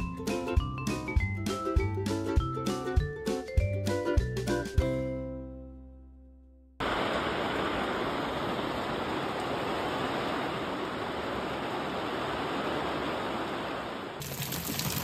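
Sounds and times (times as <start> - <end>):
heavy rain on a roof: 6.8 - 15.0
raindrops tapping outdoors: 6.8 - 15.0.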